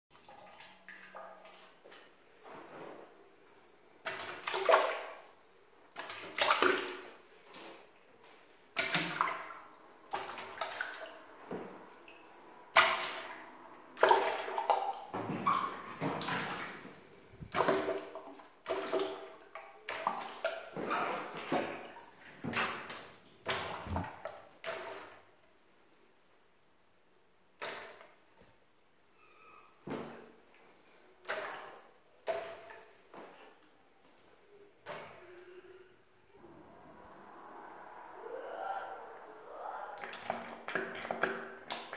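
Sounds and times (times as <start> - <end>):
water balloons splashing into toilet: 4.0 - 5.3, 5.9 - 7.9, 8.7 - 12.1, 12.7 - 25.3, 31.2 - 33.5, 40.0 - 41.9.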